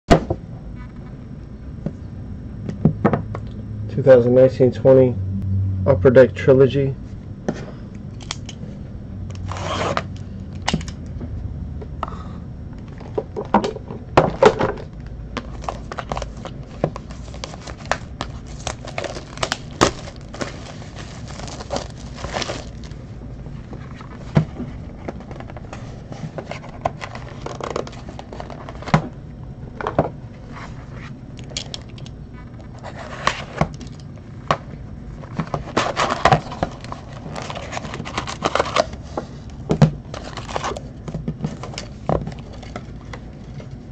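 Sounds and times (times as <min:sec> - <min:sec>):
plastic shrink wrap crinkling: 0:15.5 - 0:23.0.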